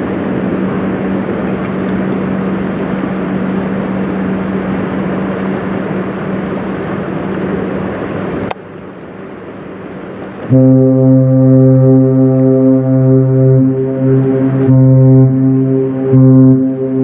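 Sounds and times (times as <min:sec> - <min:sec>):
noisy rush: 0:00.0 - 0:17.0
ship engine droning: 0:00.0 - 0:17.0
ship's horn blast: 0:10.5 - 0:17.0.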